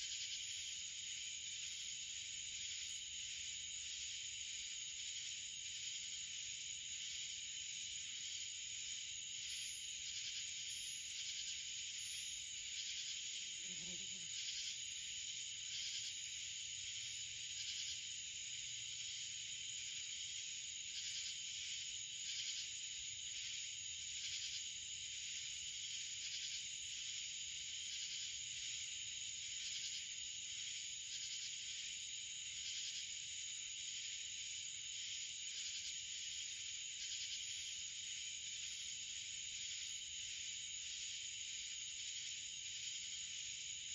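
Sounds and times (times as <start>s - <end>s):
insects buzzing drone: 0.0s - 43.9s.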